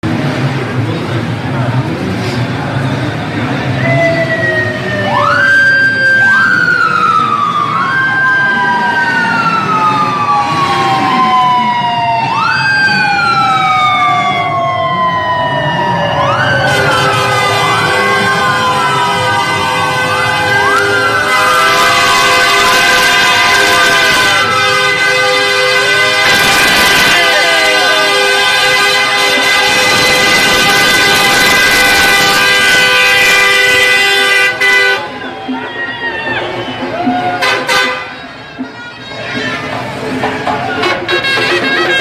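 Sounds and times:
sirens wailing: 0:02.6 - 0:42.0
long steady horn: 0:16.6 - 0:35.3, 0:37.4 - 0:38.8, 0:40.8 - 0:42.0.

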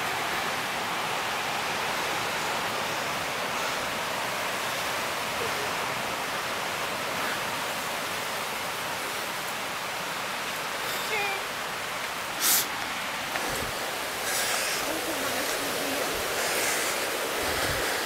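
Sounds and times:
steady rushing noise: 0:12.0 - 0:18.0.

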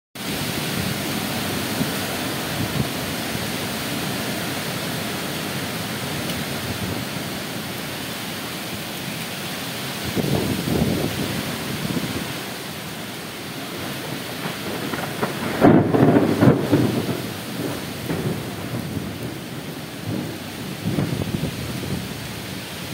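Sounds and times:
heavy rain: 0:00.2 - 0:22.9
strong wind through trees: 0:00.2 - 0:22.9
thunder rumbles: 0:10.0 - 0:12.4, 0:13.6 - 0:22.6.

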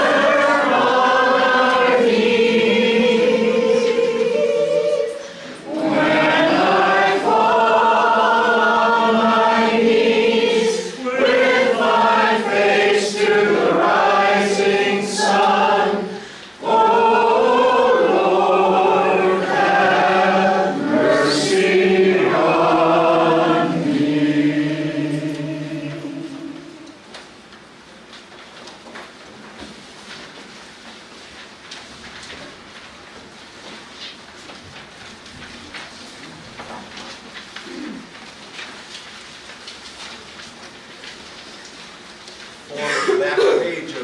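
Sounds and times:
congregation singing a hymn: 0:00.0 - 0:27.4.

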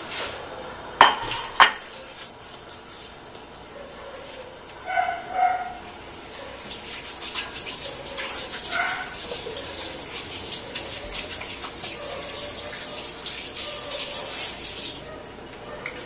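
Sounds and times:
sauce sizzling in a frying pan: 0:05.9 - 0:15.0.

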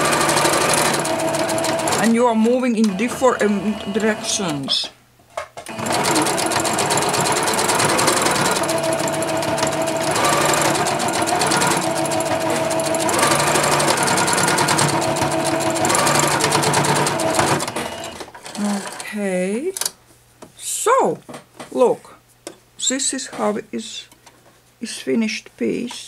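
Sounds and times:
electric sewing machine running: 0:00.0 - 0:04.7, 0:05.7 - 0:19.0.

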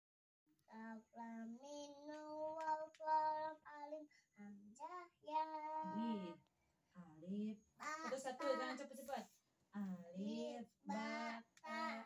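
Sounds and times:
child chanting in sing-song: 0:00.7 - 0:06.4, 0:07.8 - 0:08.8, 0:10.2 - 0:12.0.

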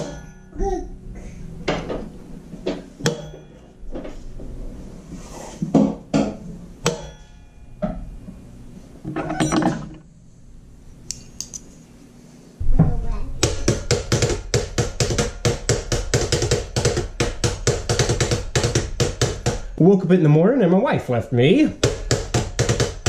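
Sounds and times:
dishes and utensils clattering: 0:09.1 - 0:10.0.

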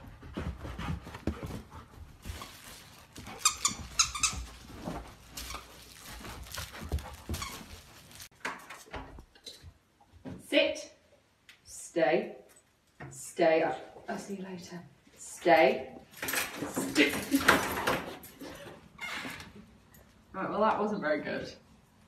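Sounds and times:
thumps and scuffling of dogs playing: 0:00.0 - 0:10.4, 0:16.2 - 0:18.7
squeaky dog toy squeaking: 0:03.4 - 0:04.6.

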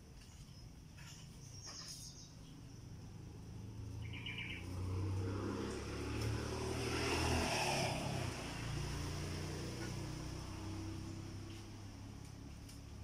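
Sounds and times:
vehicle engine passing by: 0:02.9 - 0:13.0.

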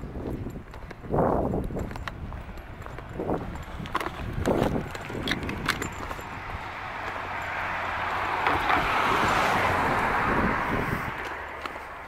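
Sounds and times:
car passing: 0:02.1 - 0:12.0.

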